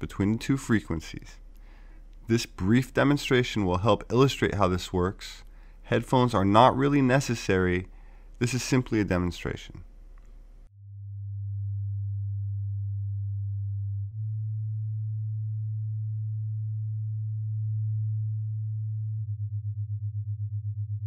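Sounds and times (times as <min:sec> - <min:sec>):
low sine tone: 0:10.7 - 0:21.0.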